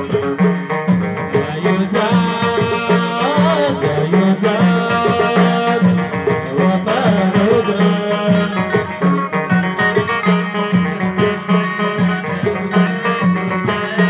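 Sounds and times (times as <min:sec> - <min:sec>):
hand drums beating: 0:00.0 - 0:14.0
plucked banjo and lute: 0:00.0 - 0:14.0
man singing: 0:01.2 - 0:09.5.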